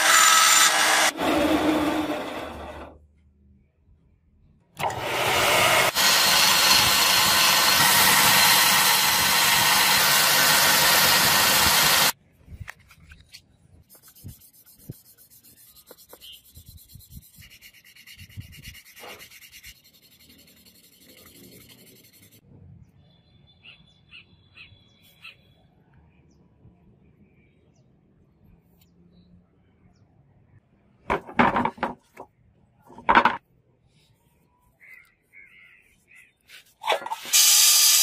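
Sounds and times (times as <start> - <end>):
belt grinder running: 0.0 - 2.9, 4.8 - 12.2
metal rubbed on sandpaper: 13.8 - 22.4.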